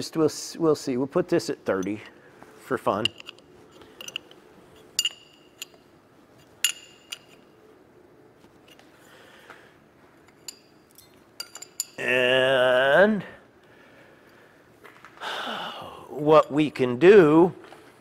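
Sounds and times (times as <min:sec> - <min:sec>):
wrench clinking on metal nuts: 0:01.7 - 0:02.2, 0:02.8 - 0:07.6, 0:10.2 - 0:12.1
man's drawn-out voice: 0:12.0 - 0:13.4.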